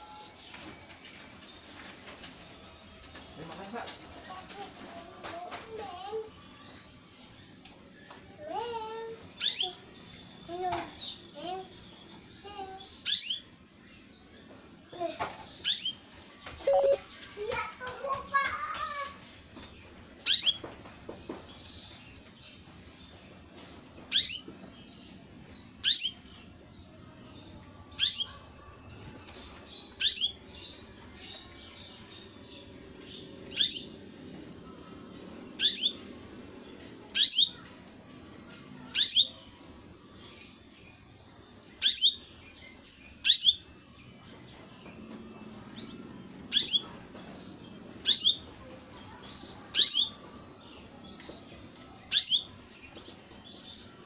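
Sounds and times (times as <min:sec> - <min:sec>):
canary chirping calls: 0:12.6 - 0:13.6, 0:16.6 - 0:17.2, 0:24.1 - 0:25.2, 0:25.8 - 0:26.4, 0:27.8 - 0:34.0, 0:35.6 - 0:36.2, 0:37.0 - 0:37.8, 0:41.7 - 0:53.9.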